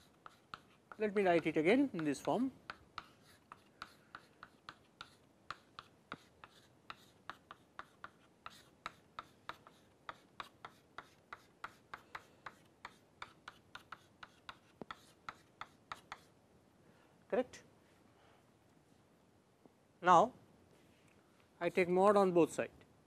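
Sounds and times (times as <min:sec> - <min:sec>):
chalk tapping and scraping on board: 0:00.0 - 0:16.4.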